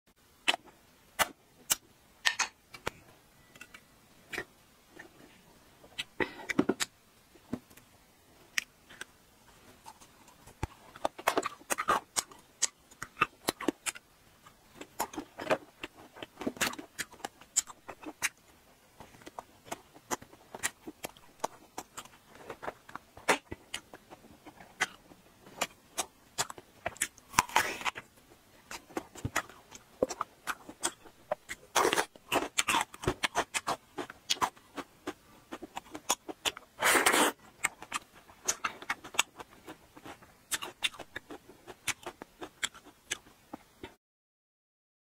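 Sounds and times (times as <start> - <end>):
eating crunches and bites: 9.8 - 43.9.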